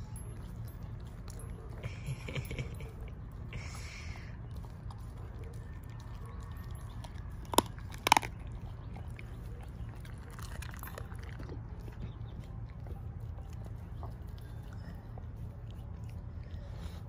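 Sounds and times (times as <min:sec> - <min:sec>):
dog chewing and crunching bones: 0:00.0 - 0:17.0
bones cracking: 0:07.4 - 0:08.6.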